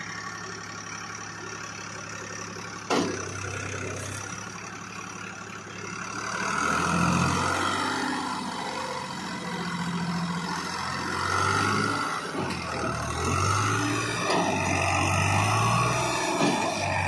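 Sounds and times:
tractor diesel engine revving: 0.0s - 17.0s.

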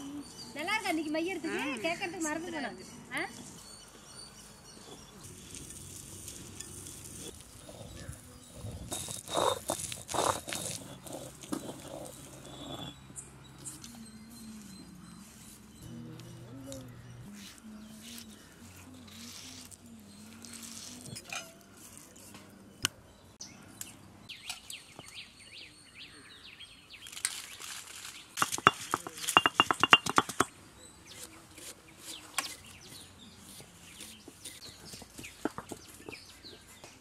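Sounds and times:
stone roller scraping grinding stone: 4.9s - 14.0s, 28.4s - 30.5s.

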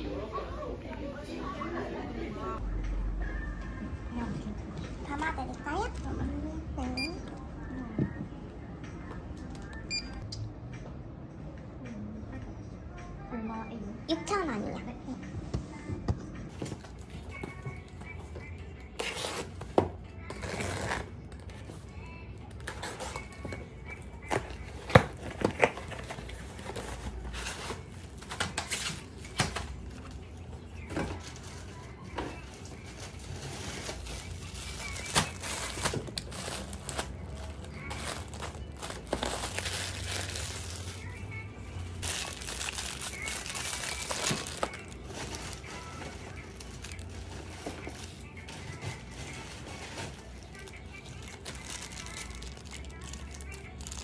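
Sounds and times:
plastic bags crinkling: 32.6s - 41.2s, 42.0s - 54.0s.

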